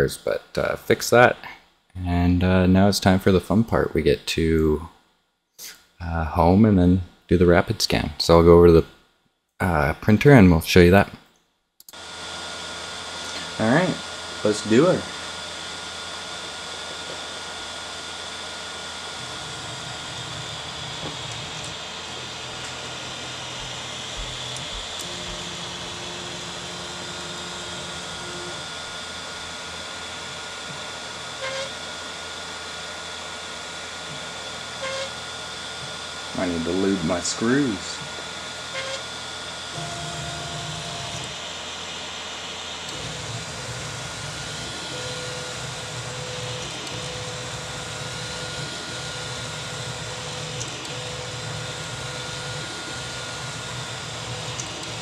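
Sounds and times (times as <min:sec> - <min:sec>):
man speaking: 0:00.0 - 0:04.9, 0:05.6 - 0:08.9, 0:09.6 - 0:11.2, 0:13.5 - 0:15.1, 0:36.4 - 0:38.0
stepper motors whining: 0:11.9 - 0:55.0
cooling fans hissing: 0:12.0 - 0:55.0
held electronic tone: 0:31.4 - 0:31.8, 0:34.8 - 0:35.2.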